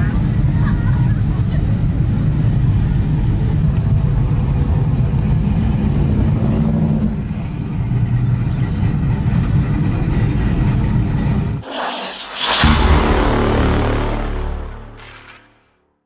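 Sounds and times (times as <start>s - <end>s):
road noise inside cab: 0.0s - 11.6s
truck engine rumble: 0.0s - 11.6s.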